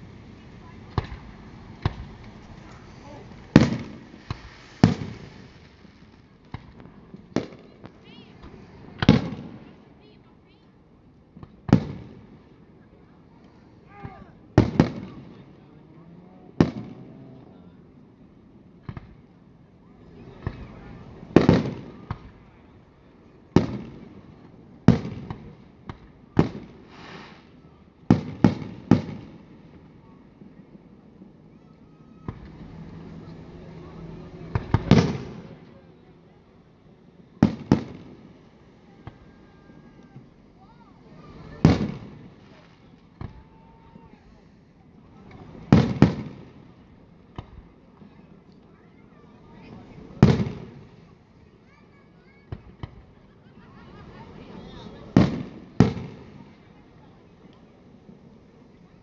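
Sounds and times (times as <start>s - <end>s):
fireworks bangs with echo: 0.0s - 9.9s, 11.3s - 12.4s, 14.0s - 15.5s, 16.6s - 17.1s, 20.2s - 22.6s, 23.5s - 30.0s, 34.2s - 35.7s, 37.4s - 40.4s, 41.0s - 44.0s, 45.1s - 47.7s, 49.6s - 51.1s, 54.9s - 56.7s
firework shells bursting: 0.9s - 9.5s.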